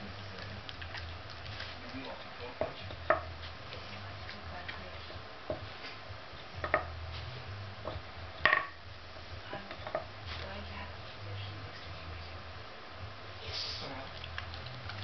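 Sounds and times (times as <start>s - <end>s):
wooden blocks knocking on wood: 2.6s - 3.3s, 6.6s - 6.9s, 7.8s - 8.8s.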